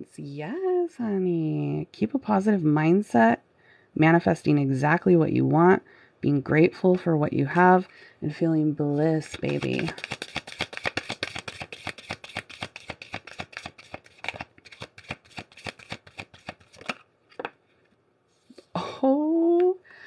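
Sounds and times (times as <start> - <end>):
person's voice: 0.0 - 3.4, 4.0 - 10.0, 18.6 - 19.8
cards being shuffled: 8.9 - 17.6.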